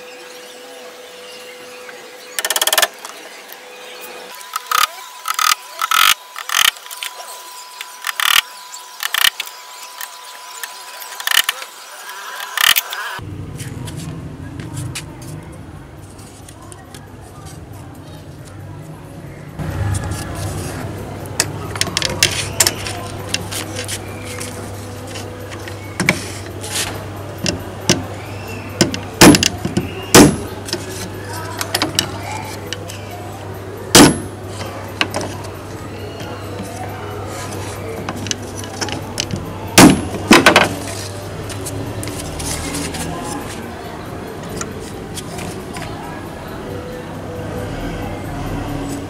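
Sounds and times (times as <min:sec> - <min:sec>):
hammer striking nails: 0:28.8 - 0:30.5, 0:34.0 - 0:34.3.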